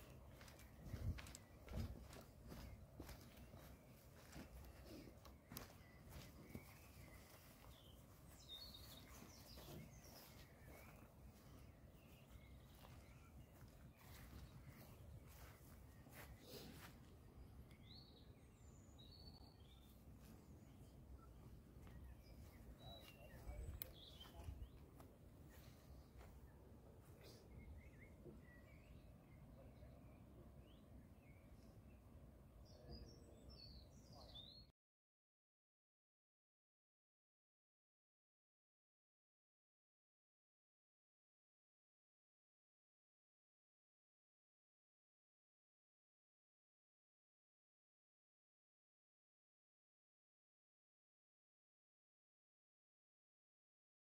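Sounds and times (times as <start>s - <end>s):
faint bird chirps: 0.0s - 32.0s.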